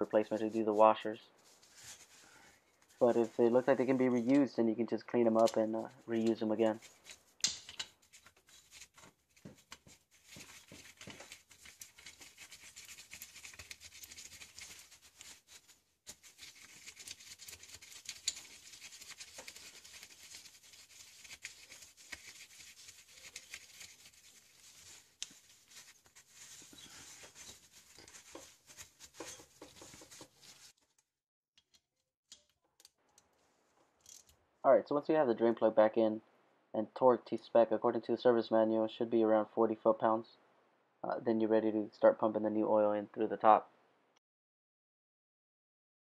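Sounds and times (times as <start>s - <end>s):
paper towel rustling and rubbing: 0.1s - 4.4s, 5.7s - 7.3s, 8.0s - 30.8s.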